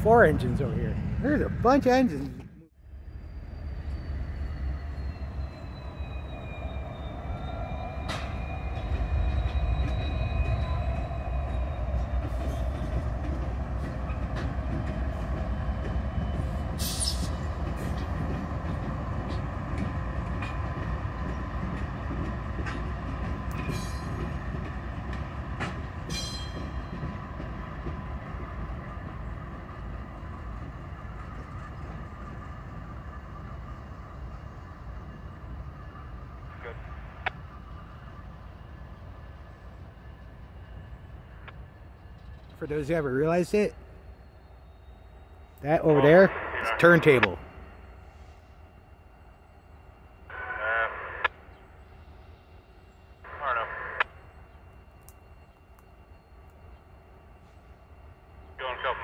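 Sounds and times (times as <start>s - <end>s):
diesel locomotive engine rumble: 0.0s - 59.0s
high wheel squeal: 3.0s - 13.0s, 16.2s - 17.9s.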